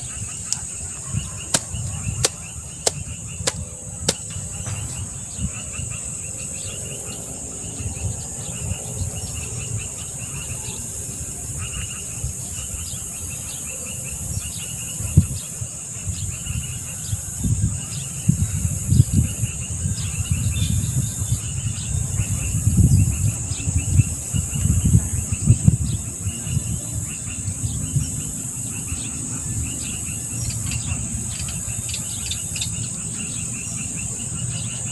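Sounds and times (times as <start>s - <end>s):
insects buzzing: 0.0s - 8.8s
insect chirps: 0.0s - 17.1s, 22.4s - 34.9s
loud low rumbles and bumps: 1.6s - 5.8s.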